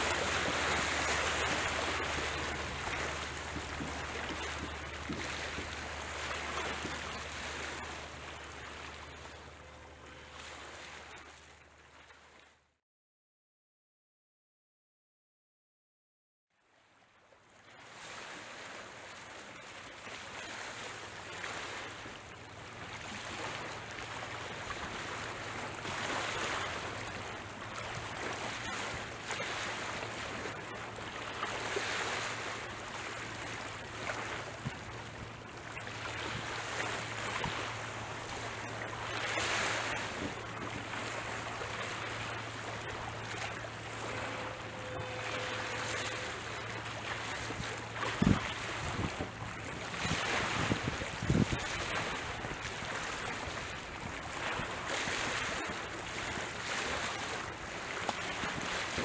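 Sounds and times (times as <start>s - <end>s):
small waves washing on shore: 0.0s - 12.5s, 16.8s - 59.0s
wind on microphone: 43.9s - 54.9s.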